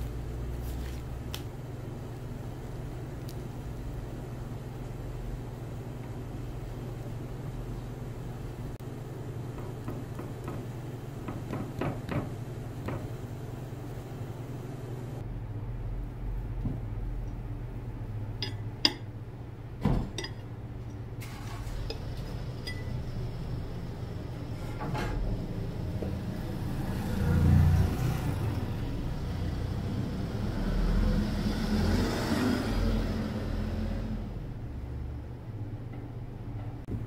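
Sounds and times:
soft rustling handling: 0.0s - 1.5s
steady low hum: 0.0s - 31.4s.

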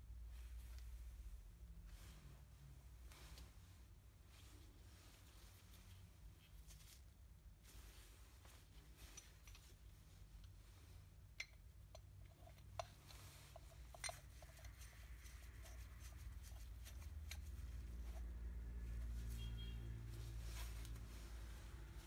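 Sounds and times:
low steady hum: 0.0s - 22.0s
small metallic clicks and taps: 11.4s - 17.8s.

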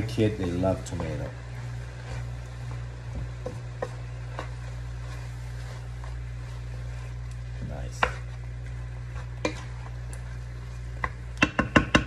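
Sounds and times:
steady low hum: 0.0s - 12.0s
wooden spatula knocking on wok: 0.1s - 1.4s, 11.0s - 12.0s.

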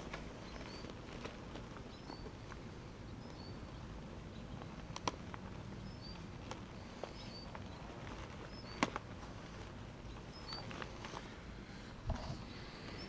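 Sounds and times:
hands handling a bag: 0.0s - 3.6s, 4.5s - 13.0s
bird chirps: 0.4s - 1.0s, 1.8s - 4.7s, 5.8s - 9.0s, 10.0s - 10.8s.

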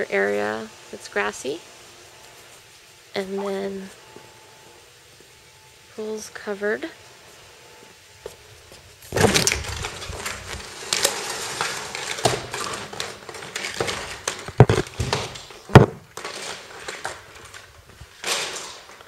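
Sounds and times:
window blind slats rustling and clacking: 9.1s - 19.0s
sharp knocks: 14.5s - 16.1s.

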